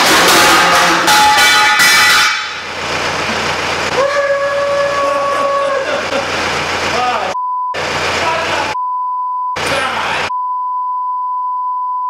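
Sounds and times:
steel beam crashing onto metal: 0:00.0 - 0:03.2
long steady-pitched scream: 0:03.9 - 0:05.9.

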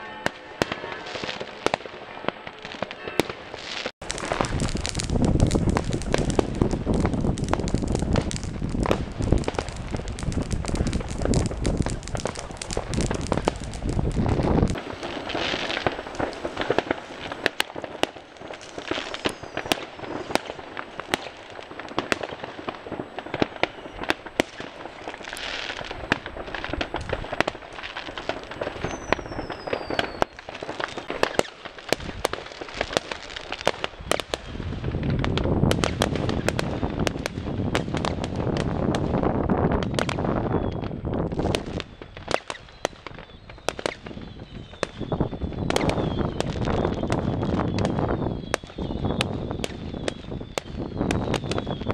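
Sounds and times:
firecrackers crackling: 0:00.0 - 0:51.9
fireworks bangs: 0:00.0 - 0:51.9
falling whistles: 0:18.6 - 0:20.5, 0:23.5 - 0:24.7, 0:28.6 - 0:31.6, 0:41.6 - 0:51.9.

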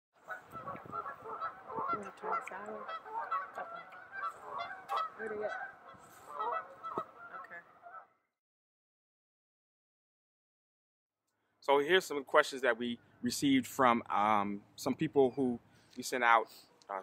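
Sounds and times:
geese honking: 0:00.2 - 0:08.2.

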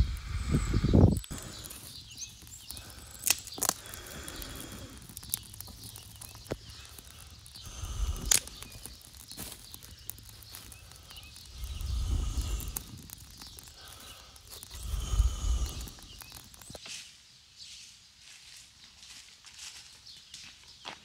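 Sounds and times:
low rumbling gusts: 0:00.0 - 0:01.7, 0:07.0 - 0:09.2, 0:10.3 - 0:16.4
campfire crackling: 0:00.0 - 0:17.0
burning sticks popping: 0:00.0 - 0:17.8.

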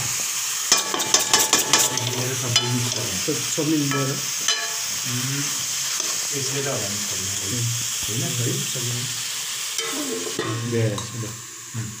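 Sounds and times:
food sizzling in a wok: 0:00.0 - 0:12.0
metal ladle scraping a pan: 0:00.7 - 0:03.1, 0:05.9 - 0:06.2, 0:09.8 - 0:11.1.

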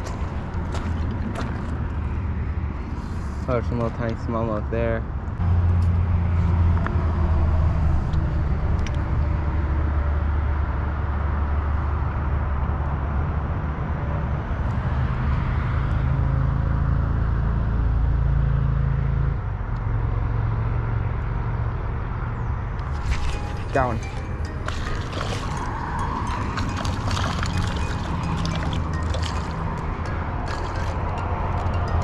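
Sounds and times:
low engine drone: 0:17.6 - 0:32.0.

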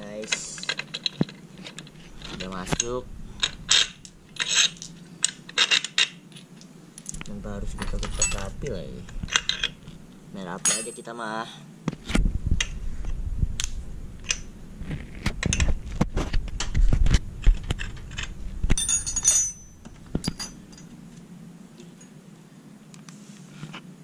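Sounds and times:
jangling metallic rattle: 0:07.8 - 0:08.6, 0:18.8 - 0:20.9
metal tool clicking and clinking: 0:10.6 - 0:11.1, 0:18.2 - 0:20.9.

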